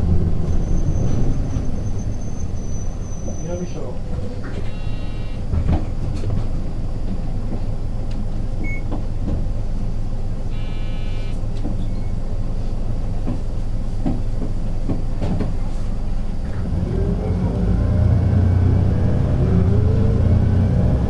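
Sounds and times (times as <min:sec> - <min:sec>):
bus doors clicking and knocking: 0:00.0 - 0:09.9, 0:11.4 - 0:16.8
bus diesel engine idling: 0:00.0 - 0:21.0
electronic beep: 0:04.7 - 0:05.4, 0:10.6 - 0:12.1.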